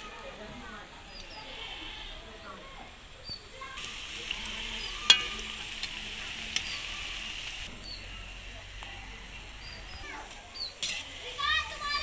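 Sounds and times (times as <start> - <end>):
fritters sizzling in hot oil: 0.1 - 12.0
ladle clinking against pan: 5.0 - 6.7.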